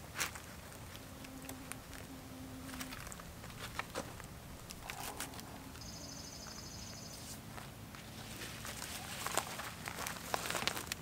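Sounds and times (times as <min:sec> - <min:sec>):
scratchy clicks against bark: 0:02.8 - 0:05.5
nylon webbing rustling: 0:07.2 - 0:11.0.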